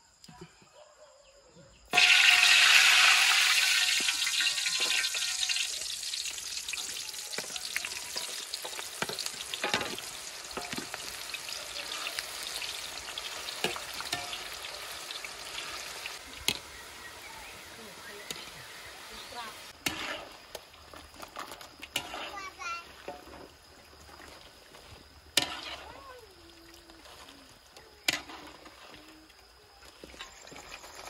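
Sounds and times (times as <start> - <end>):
food sizzling in hot oil: 1.9 - 31.0.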